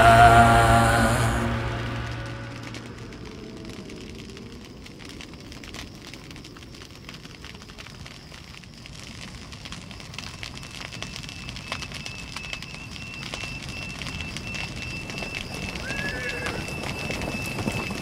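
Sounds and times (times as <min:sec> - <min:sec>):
high-pitched tone: 0:00.0 - 0:03.3
wind on microphone: 0:14.8 - 0:18.0.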